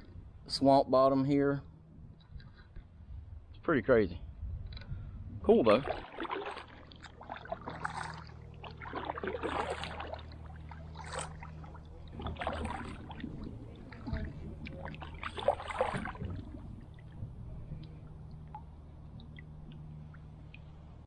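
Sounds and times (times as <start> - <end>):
steady low hum: 0.0 - 21.0
paddle splashing in water: 5.6 - 20.8
water dripping: 5.9 - 21.0.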